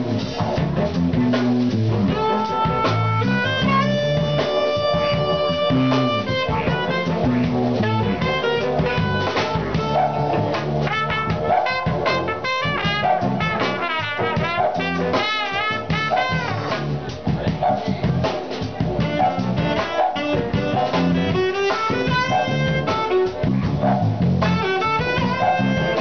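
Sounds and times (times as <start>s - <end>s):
didgeridoo drone: 0.0s - 12.3s, 18.9s - 26.0s
saxophones: 2.1s - 16.8s, 19.0s - 23.5s, 24.4s - 26.0s
trumpet solo: 2.1s - 17.0s, 19.0s - 26.0s.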